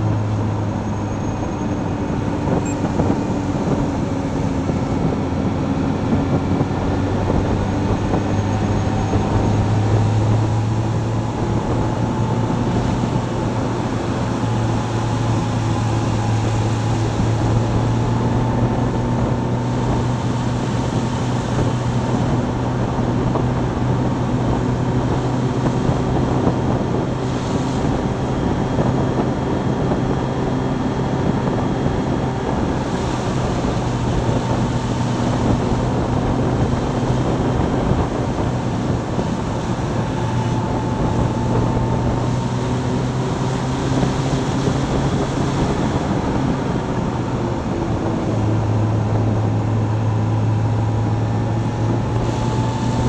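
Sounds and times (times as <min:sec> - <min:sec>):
motorcycle engine running: 0:00.0 - 0:53.0
wind rush on microphone: 0:00.0 - 0:53.0.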